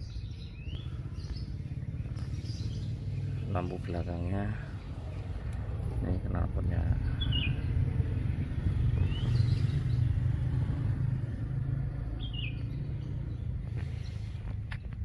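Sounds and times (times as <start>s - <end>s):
atv engine idling: 0.0s - 15.0s
bird chirping: 0.0s - 15.0s.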